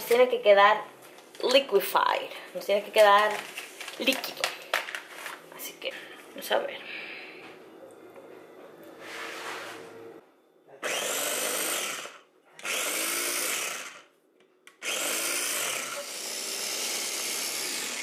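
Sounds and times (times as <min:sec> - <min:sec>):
food processor motor whining: 0:10.8 - 0:14.1, 0:14.7 - 0:18.0.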